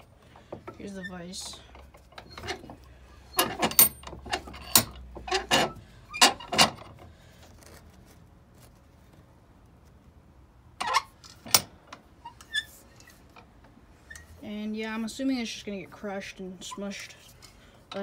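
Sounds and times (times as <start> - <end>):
sharp knocks and metallic clinks: 0.4 - 6.8.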